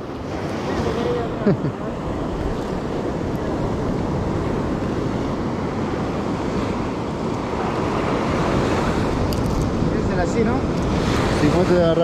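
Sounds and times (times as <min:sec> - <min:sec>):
ocean surf breaking on beach: 0:00.0 - 0:12.0
wind rumbling on microphone: 0:00.0 - 0:12.0.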